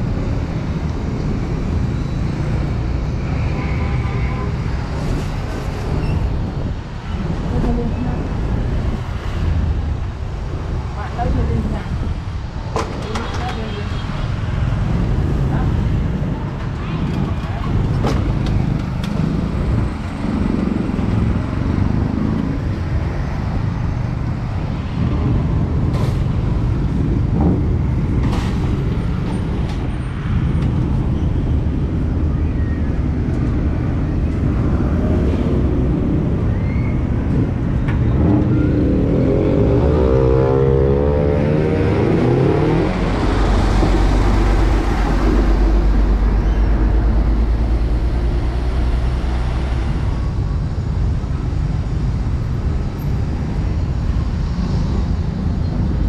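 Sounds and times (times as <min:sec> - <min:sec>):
motorbikes and cars passing: 0:00.0 - 0:56.0
deep engine rumble: 0:14.8 - 0:56.0.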